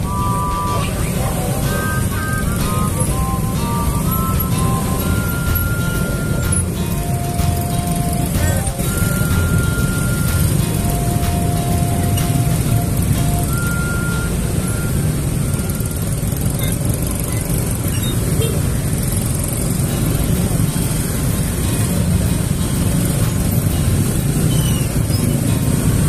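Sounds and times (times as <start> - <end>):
faint short beeps: 0.0 - 18.5
scooter engines rumbling: 0.0 - 26.0.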